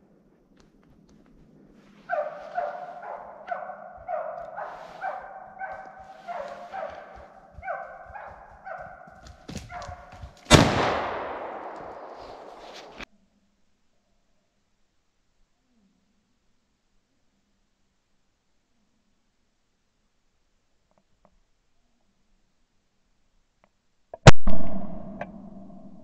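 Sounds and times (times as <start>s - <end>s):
dog baying: 2.0s - 10.4s
shotgun shot with echo: 10.5s - 13.0s.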